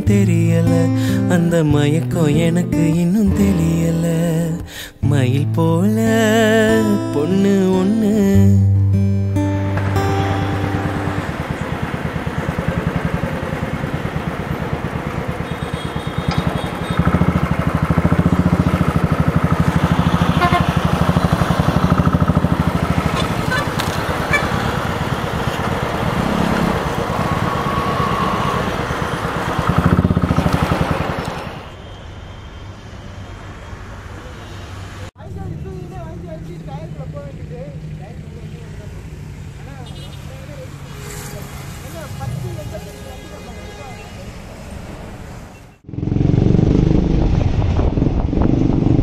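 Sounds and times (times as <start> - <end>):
motorcycle engine running: 9.7 - 31.7, 45.8 - 49.0
wind and road noise: 9.7 - 49.0.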